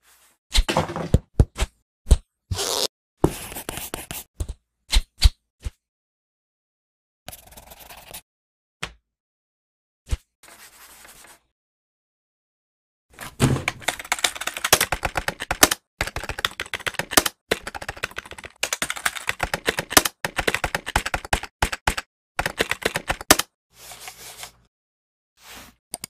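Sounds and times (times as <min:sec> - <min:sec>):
rapid clicking and tapping: 0:13.7 - 0:23.5.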